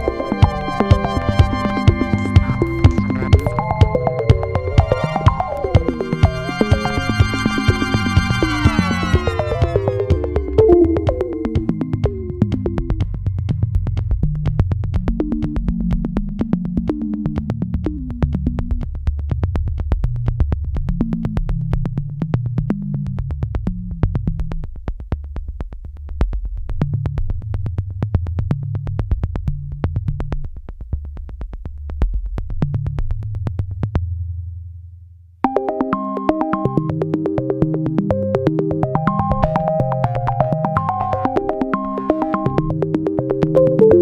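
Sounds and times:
electronic music with fast beat: 0:00.0 - 0:13.7, 0:35.5 - 0:44.0.

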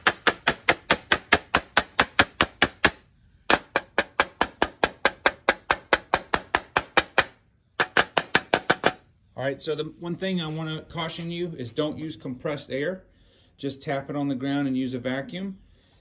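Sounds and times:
air filter knocking on concrete: 0:00.0 - 0:09.1.

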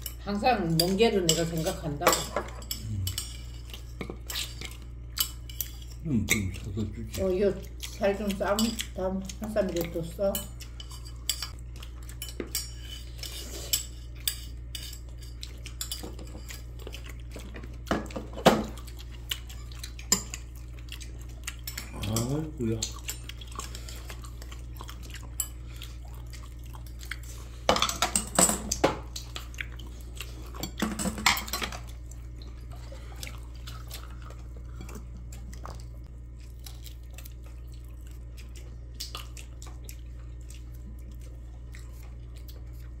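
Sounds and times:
steady low hum: 0:00.0 - 0:43.0
cutlery and dishes clinking: 0:01.2 - 0:06.6, 0:27.7 - 0:29.0, 0:30.6 - 0:31.8.

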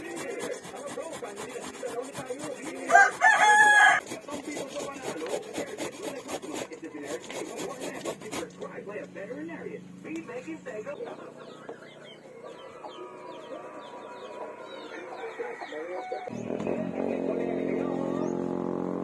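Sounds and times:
grater scraping: 0:00.0 - 0:08.8
rooster crowing: 0:02.9 - 0:04.0, 0:12.2 - 0:16.4.

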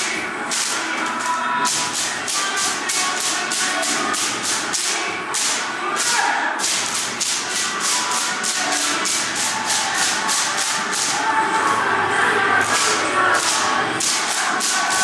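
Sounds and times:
music with fast percussive beat: 0:00.0 - 0:11.4, 0:12.6 - 0:15.0.

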